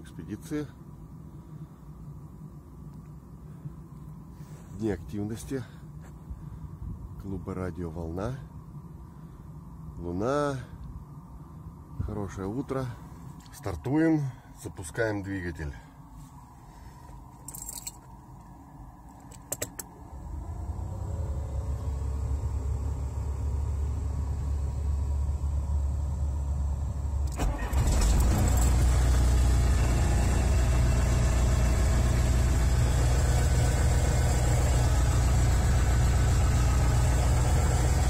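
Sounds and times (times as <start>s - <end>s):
truck engine drone: 7.5s - 38.0s
sharp clicks: 19.2s - 19.9s.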